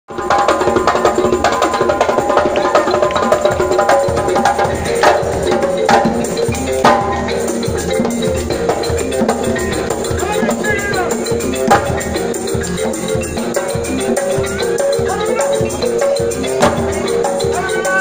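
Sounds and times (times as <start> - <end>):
djembe hand drumming: 0.1 - 18.0
sharp drum slaps: 11.6 - 12.2, 16.6 - 16.9.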